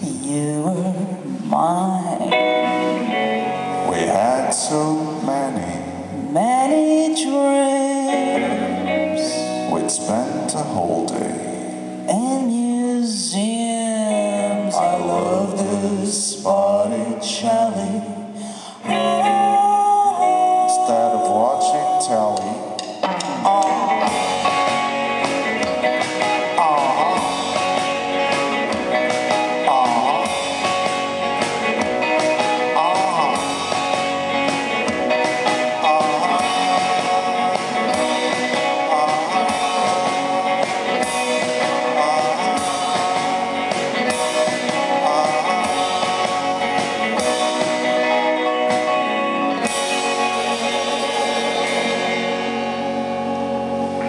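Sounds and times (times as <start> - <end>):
person singing: 0.0 - 53.3
electric guitars: 0.0 - 54.0
keyboard: 0.0 - 54.0
drum beat: 22.8 - 49.1.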